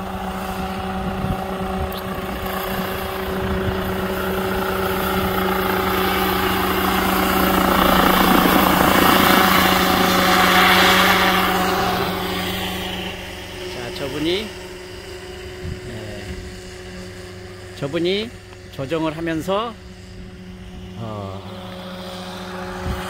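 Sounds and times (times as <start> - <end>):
helicopter engine and rotor drone: 0.0 - 23.0.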